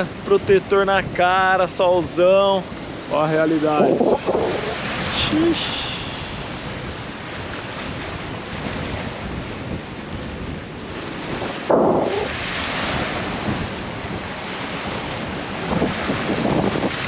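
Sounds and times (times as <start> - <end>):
water churning past hull: 0.0 - 17.0
wind rushing over microphone: 0.0 - 17.0
muffled whoosh: 3.4 - 6.5.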